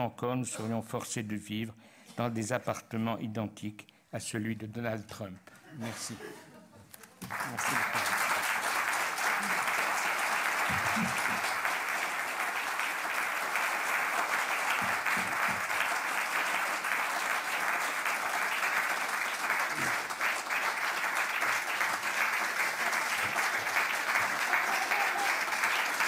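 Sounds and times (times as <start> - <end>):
audience applauding: 7.2 - 26.0.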